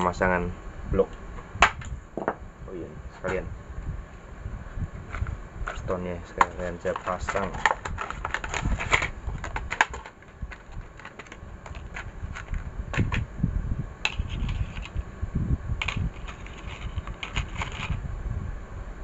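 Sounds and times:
low background rumble: 0.0 - 19.0
plastic tray clicks and rattles: 6.4 - 13.2.

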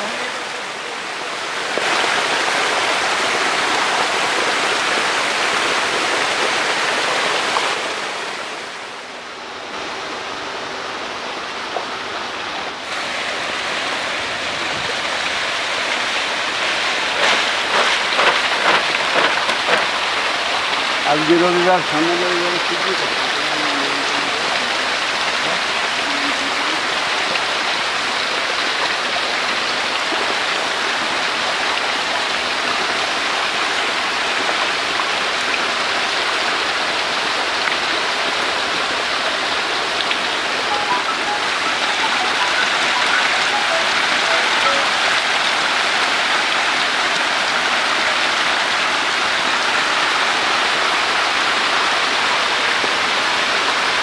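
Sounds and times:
fish splashing water: 16.9 - 20.4.

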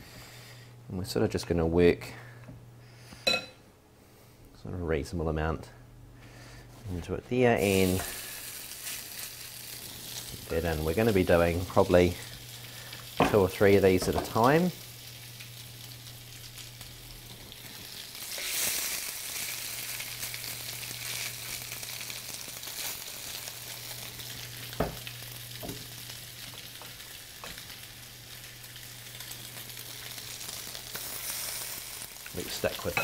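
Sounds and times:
food sizzling in hot oil: 7.6 - 33.0.

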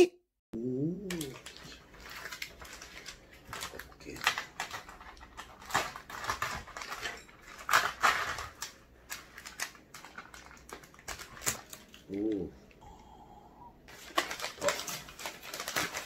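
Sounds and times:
plastic wrapping crinkling: 1.1 - 12.4, 13.9 - 16.0.

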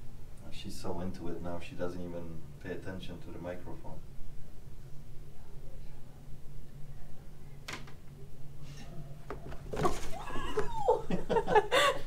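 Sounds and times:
low steady hum: 0.0 - 12.0
long rising and falling cry: 10.1 - 12.0
woman laughing: 10.1 - 12.0.

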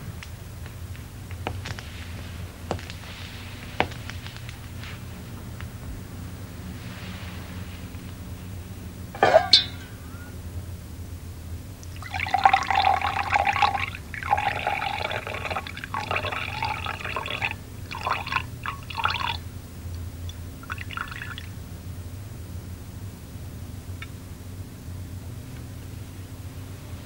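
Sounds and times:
steady low hum: 0.0 - 27.0
liquid pouring: 11.9 - 19.4, 20.6 - 21.6.

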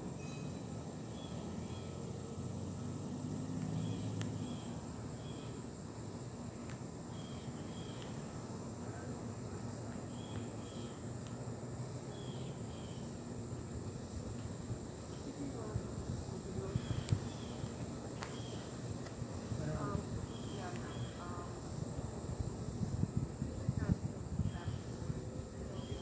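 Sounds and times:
distant traffic rumble: 0.0 - 26.0
high insect drone: 0.0 - 26.0
bird chirps: 16.7 - 18.7.

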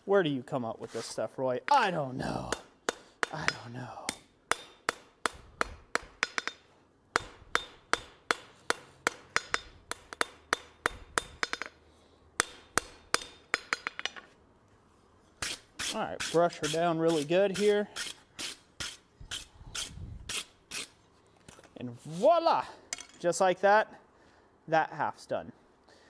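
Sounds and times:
hammer striking steel on anvil: 1.8 - 11.8, 12.4 - 14.2.

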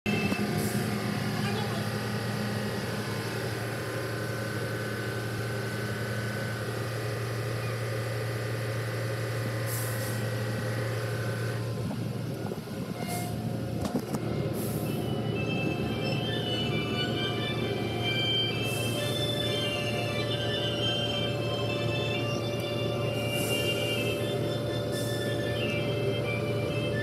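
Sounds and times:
car wash machinery hum: 0.1 - 27.0
music: 14.3 - 27.0.

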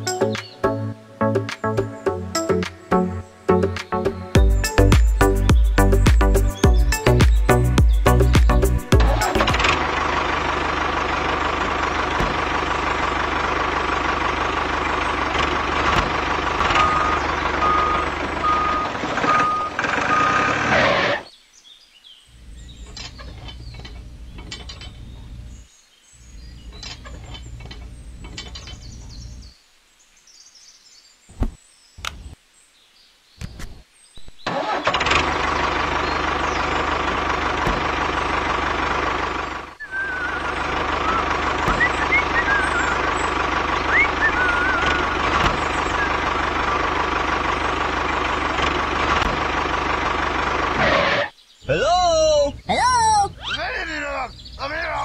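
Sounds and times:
tractor engine running: 4.4 - 21.3, 22.4 - 25.6, 26.4 - 29.5, 34.4 - 55.0
low hum: 35.2 - 51.3.

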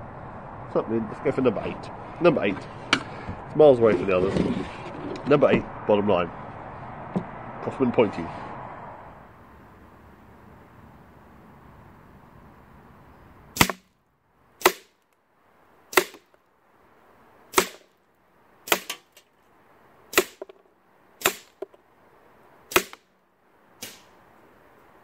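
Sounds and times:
air rifle shots: 13.6 - 13.9, 14.6 - 14.9, 15.9 - 16.2, 17.5 - 17.9, 18.7 - 19.0, 20.1 - 20.4, 21.2 - 21.6, 22.7 - 23.0, 23.8 - 24.2.

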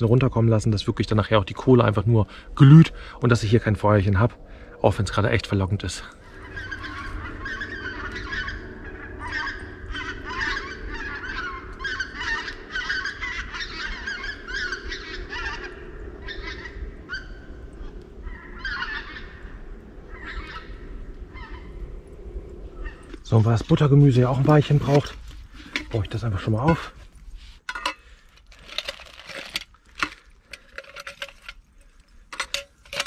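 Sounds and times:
geese honking: 6.2 - 17.5, 18.2 - 21.8.

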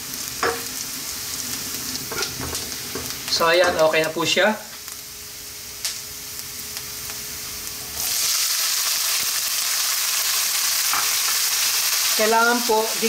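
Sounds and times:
food frying in oil: 0.0 - 13.0
loud sizzle of vegetables: 0.0 - 13.0.

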